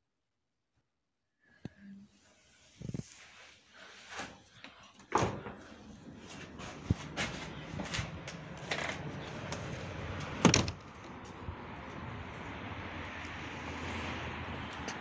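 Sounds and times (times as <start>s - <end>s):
door shutting with a thud: 5.1s - 5.7s, 10.4s - 10.8s.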